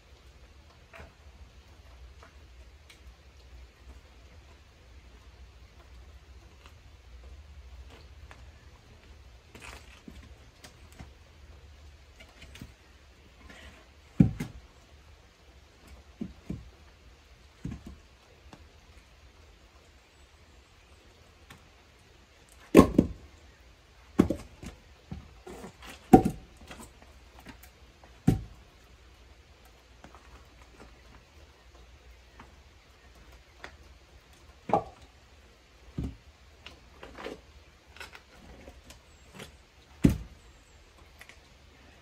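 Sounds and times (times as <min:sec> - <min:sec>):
splitting tool thunking into wood: 0:40.0 - 0:40.3.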